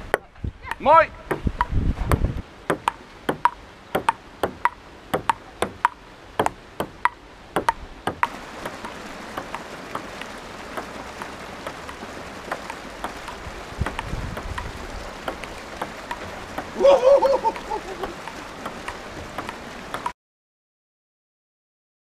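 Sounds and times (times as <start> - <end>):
steady hiss: 0.0 - 20.1
table tennis ball clicking: 2.7 - 10.1, 10.8 - 16.8, 17.6 - 20.1.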